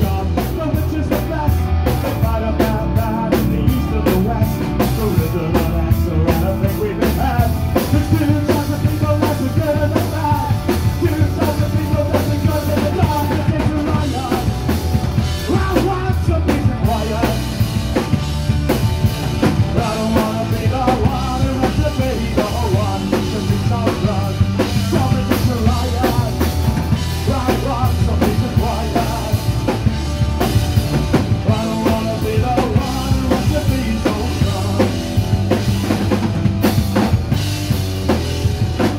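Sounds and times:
man singing into microphone: 0:00.0 - 0:14.6, 0:15.4 - 0:17.6, 0:19.8 - 0:29.6, 0:31.4 - 0:35.1
bass guitar: 0:00.0 - 0:38.9
drum kit with bass drum: 0:00.0 - 0:38.9
electric guitars: 0:00.0 - 0:38.9.

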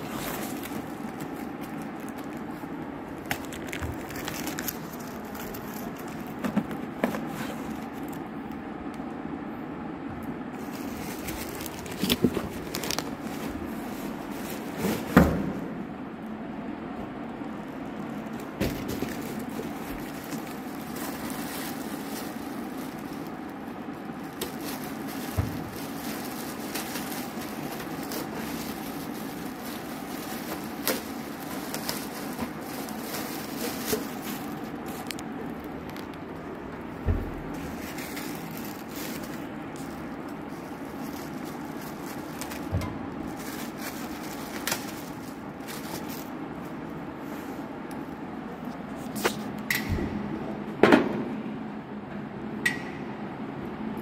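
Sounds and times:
plastic packaging crinkling: 0:00.0 - 0:08.6, 0:10.5 - 0:15.5, 0:17.0 - 0:47.1
steady hum: 0:00.0 - 0:54.0.

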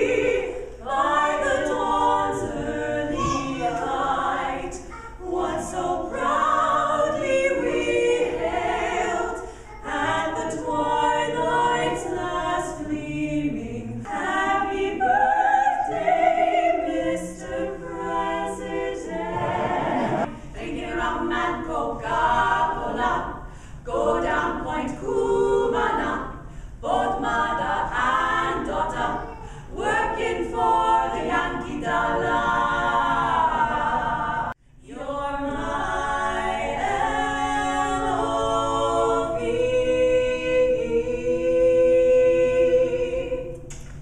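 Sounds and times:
women singing a cappella: 0:00.0 - 0:44.0.

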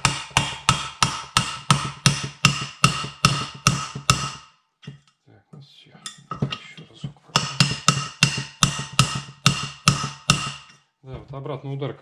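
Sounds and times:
hammer striking metal mandrel: 0:00.0 - 0:05.1, 0:07.3 - 0:10.8.

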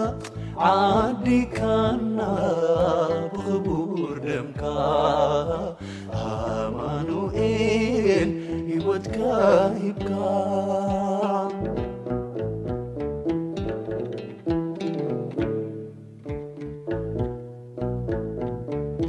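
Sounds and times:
hymn with wavering melody: 0:00.0 - 0:11.6.

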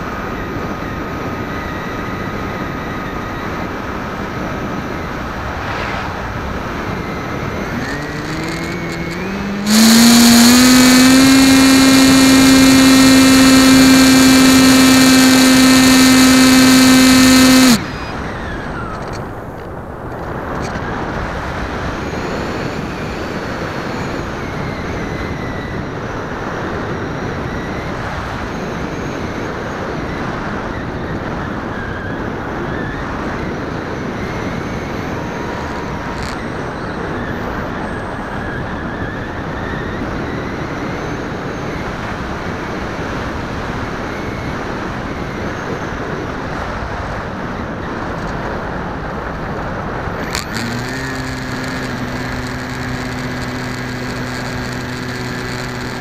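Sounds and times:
motor and propeller whine: 0:00.0 - 0:56.0
wind rushing over camera: 0:00.0 - 0:56.0.

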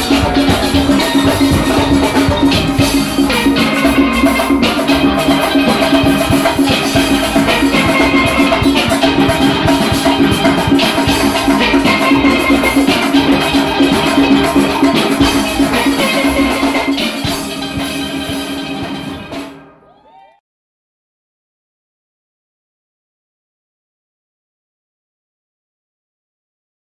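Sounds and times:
steel pans playing: 0:00.0 - 0:19.6
drums and percussion: 0:00.0 - 0:19.7.

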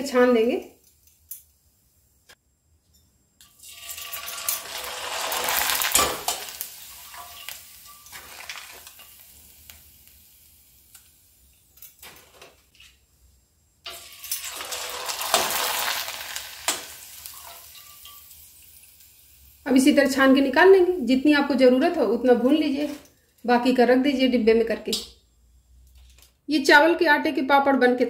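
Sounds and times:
papads sizzling in hot oil: 0:03.5 - 0:13.0, 0:13.8 - 0:21.1.

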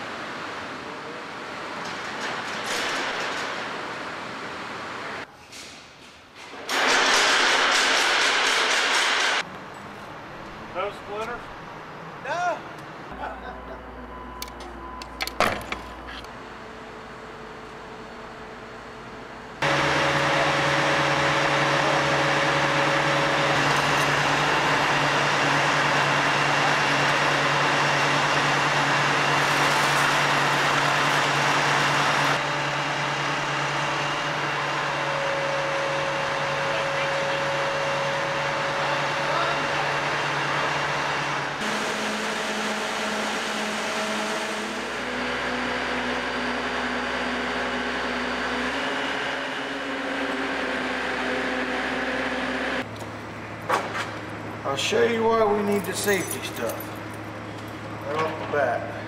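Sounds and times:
machinery noise: 0:06.5 - 0:59.0
diesel engine running: 0:15.9 - 0:59.0.

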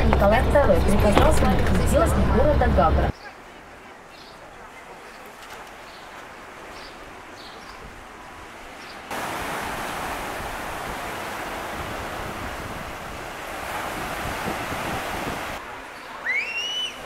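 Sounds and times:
waves on pebble beach: 0:08.1 - 0:17.0.

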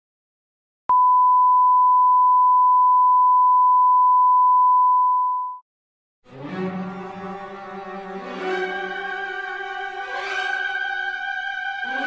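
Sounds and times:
steady high test tone beep: 0:00.9 - 0:05.6.

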